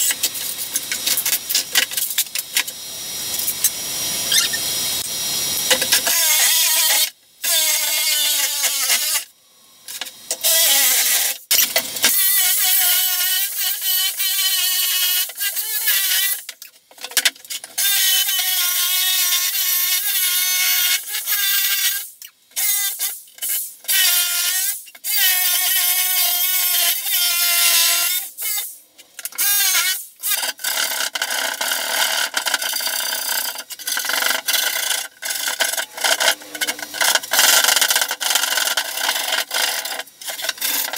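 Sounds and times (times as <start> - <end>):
jigsaw cutting plywood: 4.2 - 5.0, 29.4 - 40.9.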